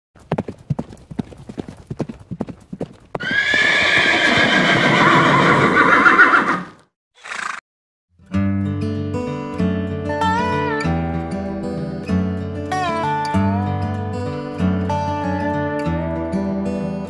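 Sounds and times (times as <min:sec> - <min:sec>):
hoofbeats on grass: 0:00.2 - 0:05.0.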